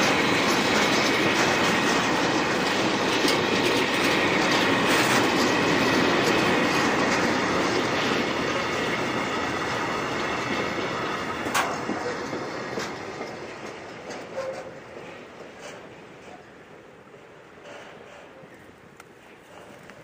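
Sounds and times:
freight train wheels clattering: 0.0s - 20.0s.

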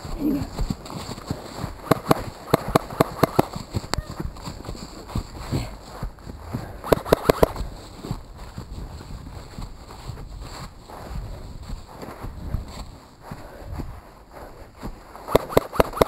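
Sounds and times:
sharp clicks: 1.8s - 4.0s, 6.8s - 7.6s, 15.3s - 16.0s
footsteps through dry leaves: 7.6s - 15.3s.

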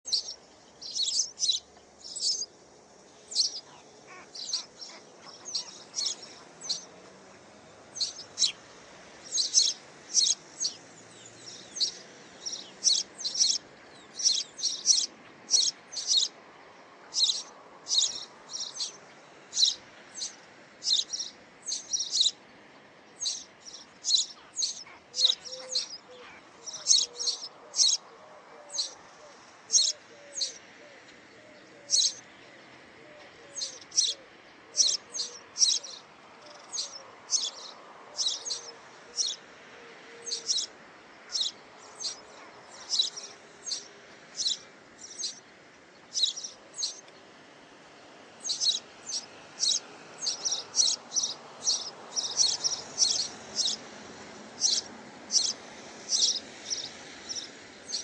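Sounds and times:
small bird chirping: 0.0s - 2.5s, 3.2s - 7.2s, 8.0s - 16.3s, 17.1s - 22.4s, 23.2s - 28.0s, 29.7s - 30.6s, 31.8s - 32.2s, 34.8s - 39.4s, 40.3s - 40.7s, 41.3s - 45.4s, 46.1s - 47.2s, 48.4s - 53.8s, 54.6s - 58.0s.

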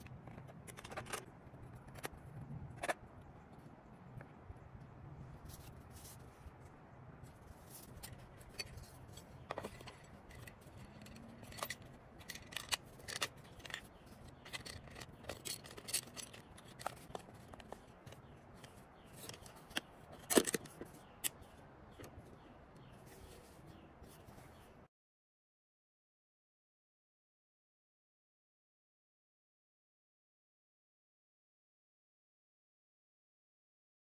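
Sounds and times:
light clicks taps and scrapes: 7.2s - 24.6s.

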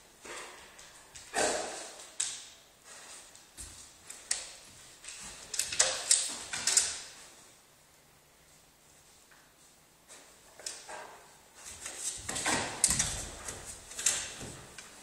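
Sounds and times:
dog claws clicking on tiles: 4.1s - 7.1s, 11.8s - 14.9s.

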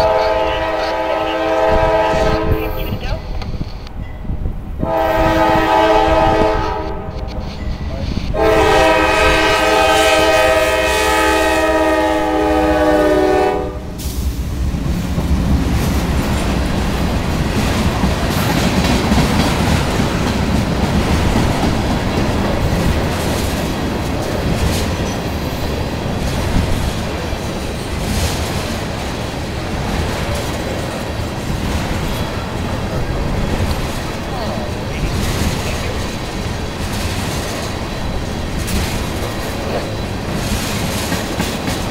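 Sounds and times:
locomotive air horn blasts: 0.0s - 3.0s, 4.8s - 7.4s, 8.3s - 14.0s
train wheels clacking on rails: 0.0s - 41.9s.

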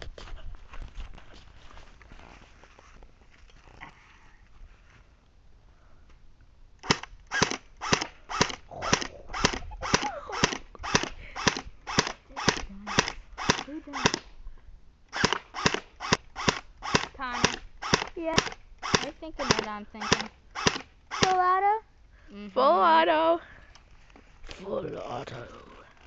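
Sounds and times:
airsoft gun shots: 6.8s - 14.3s, 15.1s - 21.4s.

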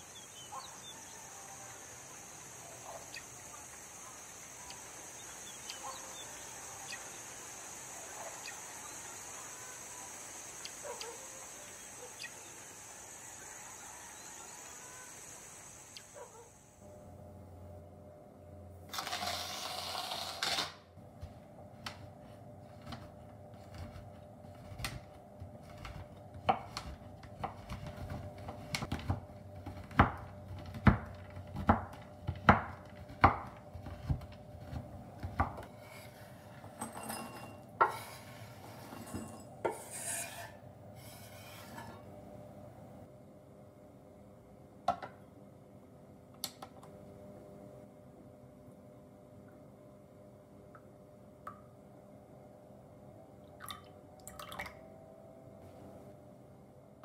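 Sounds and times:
knife chopping on wooden board: 25.7s - 35.7s
knife scraping board: 33.7s - 42.1s.

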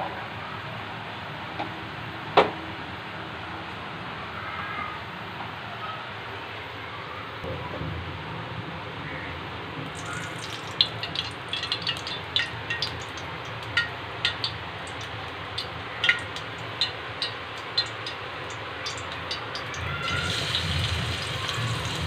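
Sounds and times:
hot oil crackling and popping: 9.8s - 22.0s.

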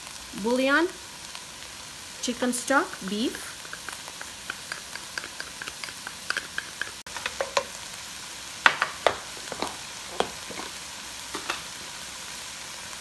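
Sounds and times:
meat sizzling and popping: 0.0s - 13.0s
spatula scraping and knocking pan: 2.8s - 7.8s, 8.7s - 11.7s.

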